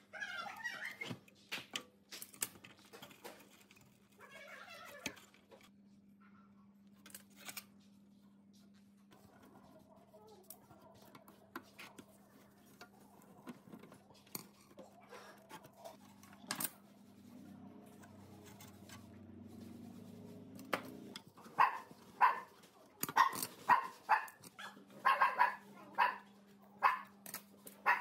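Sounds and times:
dog barking: 21.5s - 27.2s, 27.8s - 28.0s.

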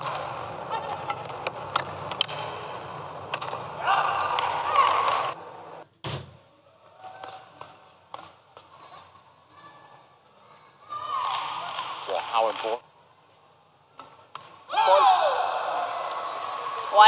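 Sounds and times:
crowd in large hall: 0.0s - 17.0s
rackets striking shuttlecock: 3.3s - 5.3s, 7.2s - 8.7s.

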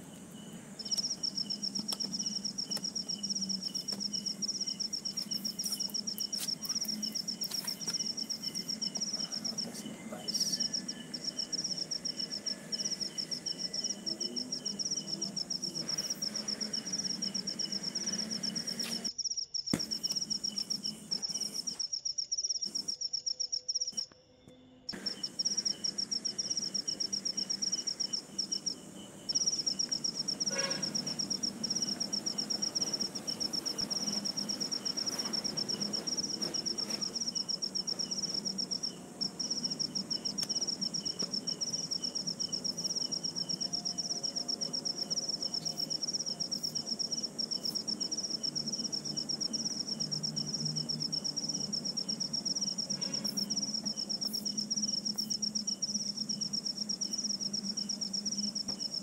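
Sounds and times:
faint low hum: 0.0s - 19.1s
insects trilling: 0.0s - 59.0s.

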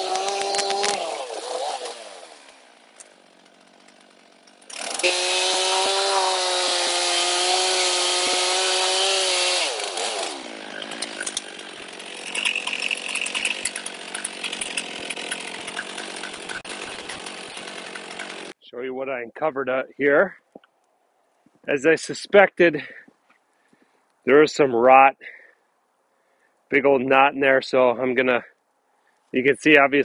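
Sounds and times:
chainsaw cutting a log: 0.0s - 18.6s.

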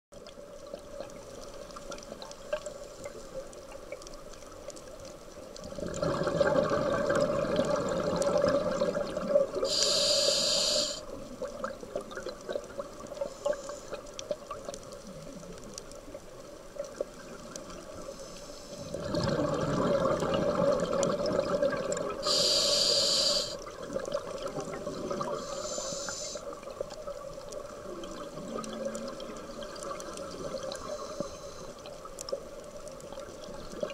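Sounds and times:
bubbles rumbling underwater: 5.6s - 9.7s, 18.9s - 22.3s
diver breathing through regulator: 9.6s - 11.1s, 22.2s - 23.6s, 25.1s - 26.4s
short high hiss: 9.7s - 11.0s, 22.2s - 23.6s, 25.4s - 26.4s.

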